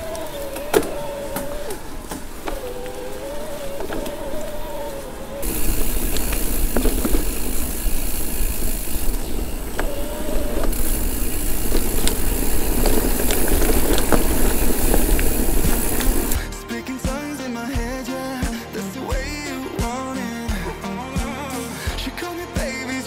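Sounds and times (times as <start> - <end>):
wind rumble on microphone: 0.0 - 16.4
bike clicking and rattling: 0.0 - 23.0
tyres hissing on dirt: 0.0 - 23.0.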